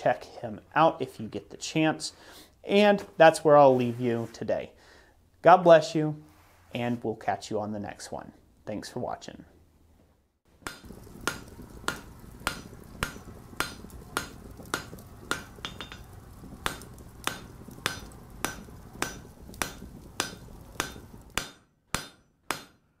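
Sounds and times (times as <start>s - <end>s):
low steady rumble: 10.8s - 21.4s.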